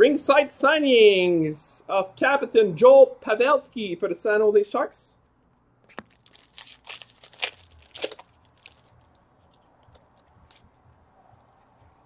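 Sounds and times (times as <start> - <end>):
cards being handled: 5.8 - 12.0
foil pack tearing and crinkling: 5.9 - 9.6.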